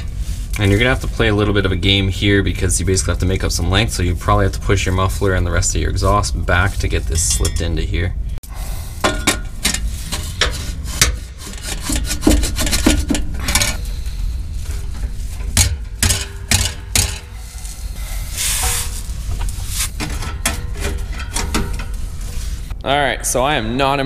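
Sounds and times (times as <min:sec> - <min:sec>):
metal pipes scraping: 0:06.0 - 0:08.0, 0:08.8 - 0:22.8
metal pipe knocking and clanking: 0:07.1 - 0:07.8, 0:09.0 - 0:13.8, 0:14.6 - 0:17.4, 0:18.6 - 0:22.0.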